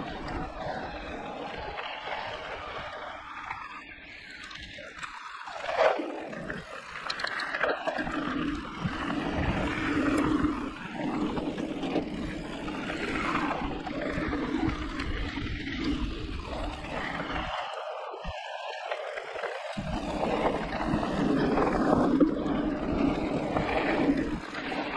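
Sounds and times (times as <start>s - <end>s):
wind on microphone: 0.0s - 5.0s, 5.6s - 18.5s, 19.8s - 24.9s
bike tyres rumbling over dirt: 0.0s - 24.9s.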